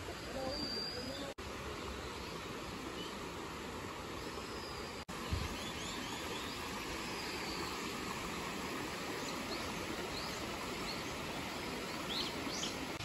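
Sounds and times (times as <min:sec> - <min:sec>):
bird chirps: 0:00.1 - 0:01.4
rocky stream rushing: 0:01.4 - 0:13.0.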